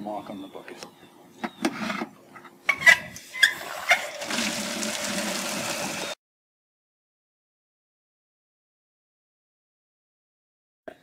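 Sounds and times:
water pouring into bucket: 0:03.3 - 0:06.2.

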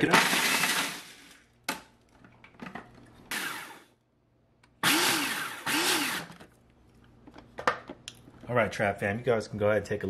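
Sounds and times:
food processor grinding noodles: 0:00.1 - 0:01.2, 0:03.3 - 0:03.8, 0:04.8 - 0:06.4.

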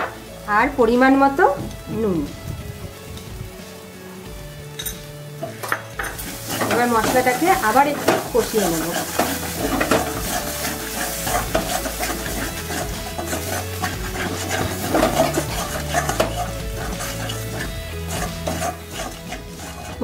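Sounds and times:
paste sizzling in oil: 0:00.0 - 0:20.0
metal spatula scraping metal pan: 0:04.9 - 0:20.0.

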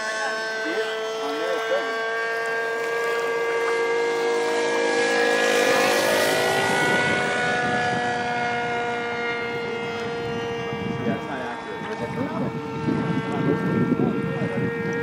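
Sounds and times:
model airplane engine drone: 0:00.0 - 0:15.0.

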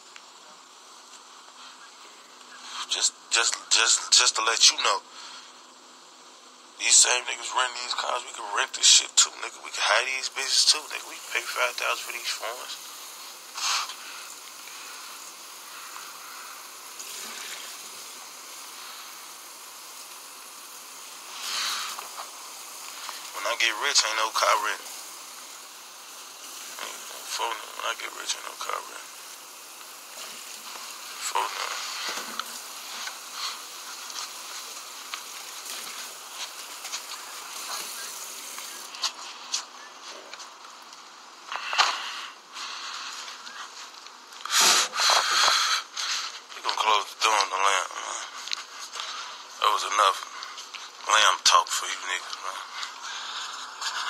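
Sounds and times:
microphone air hiss: 0:00.0 - 0:54.0
person blowing out smoke: 0:12.7 - 0:23.4, 0:44.4 - 0:46.0.

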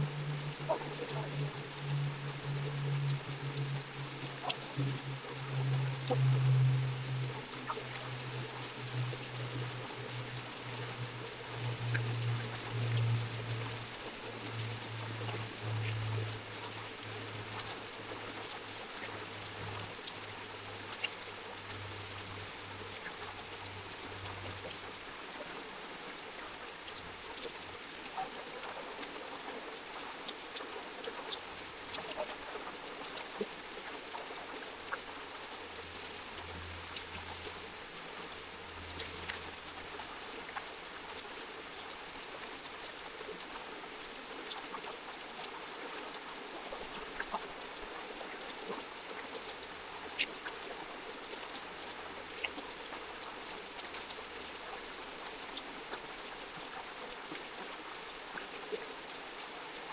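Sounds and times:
creek water flowing: 0:00.0 - 0:59.9
small ticks and drips: 0:00.0 - 0:59.9.

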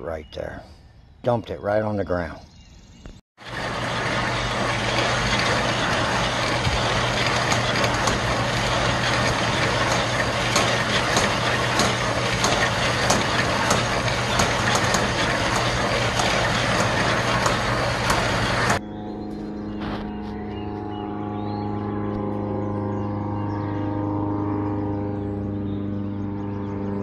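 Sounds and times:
compost tumbling and rattling: 0:03.4 - 0:18.8
drum turning with steady hum: 0:03.4 - 0:18.8.

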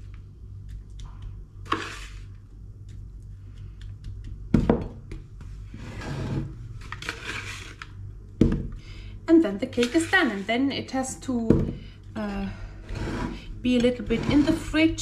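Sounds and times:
spoon scraping bowl: 0:01.6 - 0:03.0, 0:05.8 - 0:07.9, 0:09.7 - 0:10.6, 0:12.8 - 0:15.0.

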